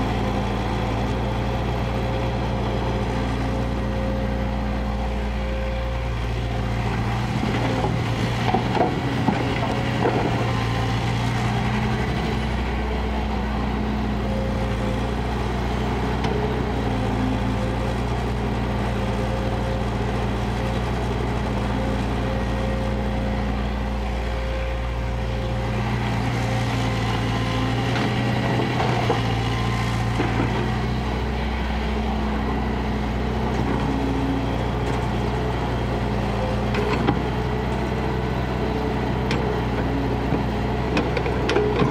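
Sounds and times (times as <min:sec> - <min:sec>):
excavator diesel engine: 0:00.0 - 0:41.9
clunks: 0:07.3 - 0:10.9, 0:39.3 - 0:41.9.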